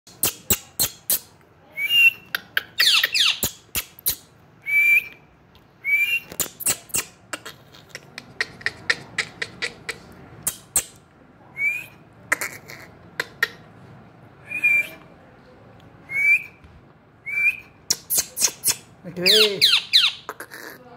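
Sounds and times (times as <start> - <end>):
parakeet whistled chirps: 17.3 - 20.2.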